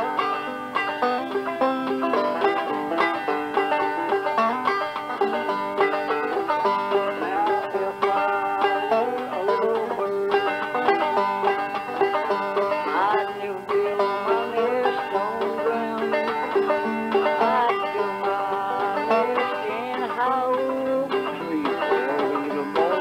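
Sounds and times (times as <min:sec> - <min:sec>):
banjo playing: 0:00.0 - 0:23.0.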